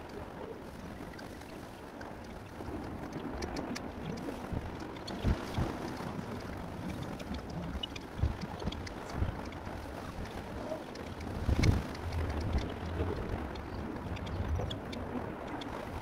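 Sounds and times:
faint ticks: 0.0 - 16.0
wind rumbling on microphone: 0.0 - 16.0.

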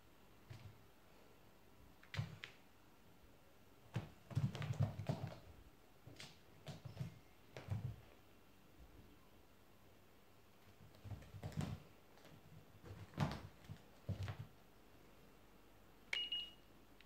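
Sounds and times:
cat paws thudding and scratching: 3.9 - 8.1, 10.6 - 14.6.

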